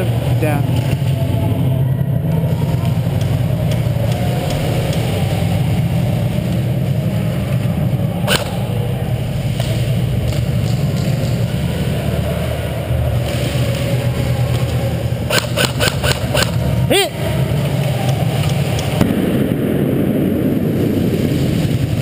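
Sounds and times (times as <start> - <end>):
low background rumble: 0.0 - 22.0
sharp click: 15.3 - 16.6.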